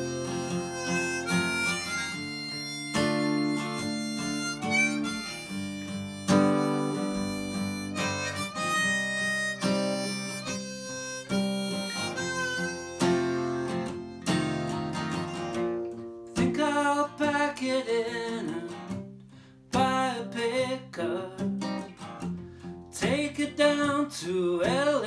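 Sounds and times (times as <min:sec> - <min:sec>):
harmonica melody: 0:00.0 - 0:18.9
acoustic guitar: 0:00.0 - 0:25.0.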